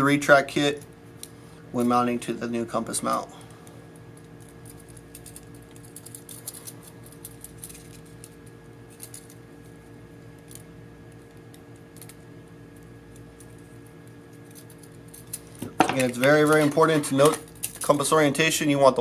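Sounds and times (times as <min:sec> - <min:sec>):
steady background hum: 0:00.0 - 0:19.0
plastic parts handled: 0:04.4 - 0:09.4, 0:14.4 - 0:18.0.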